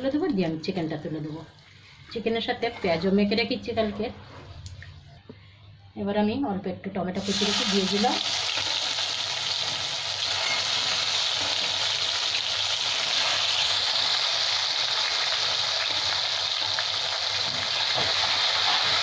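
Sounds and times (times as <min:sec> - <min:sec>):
food sizzling in hot oil: 0:07.2 - 0:19.0.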